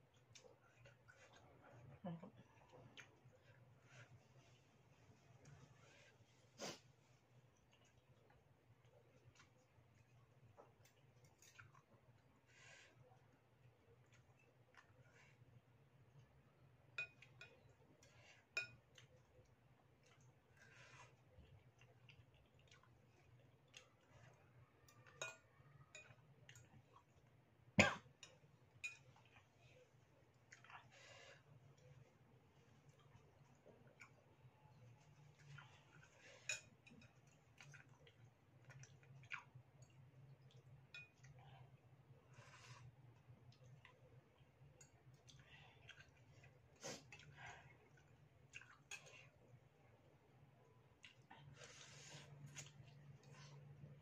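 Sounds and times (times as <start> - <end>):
chewing and slurping: 0.0 - 13.0, 17.2 - 25.2, 28.9 - 41.4, 42.3 - 49.5, 51.0 - 53.9
cutlery clinking on ceramic bowl: 17.0 - 17.6, 18.6 - 18.9, 25.0 - 26.2, 28.2 - 29.1, 40.9 - 41.2.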